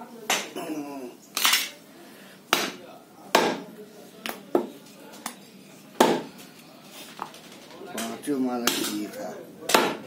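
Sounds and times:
cleaver chopping meat on wood: 2.5 - 3.7, 6.0 - 6.3, 9.7 - 10.0.

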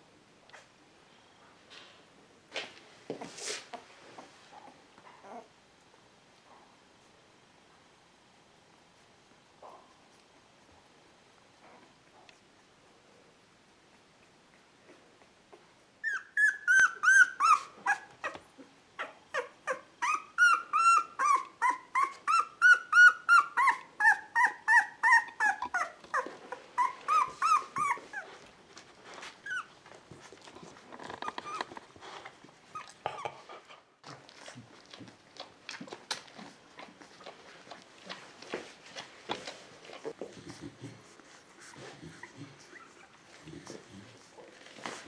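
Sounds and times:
puppy crying: 5.1 - 5.5, 16.0 - 28.4, 29.4 - 29.8, 31.2 - 31.7.

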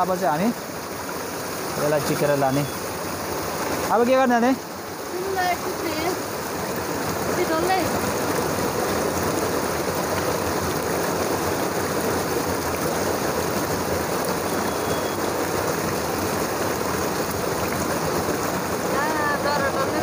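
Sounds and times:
stream rushing: 0.0 - 20.0.

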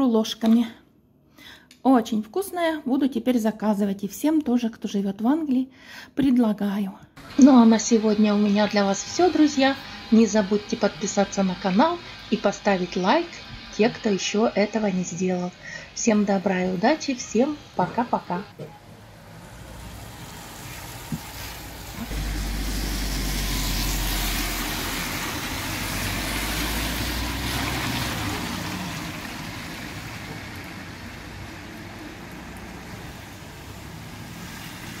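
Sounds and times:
tyre hiss on wet road: 9.0 - 11.4, 12.0 - 14.2, 19.3 - 35.0
rain: 18.8 - 35.0.

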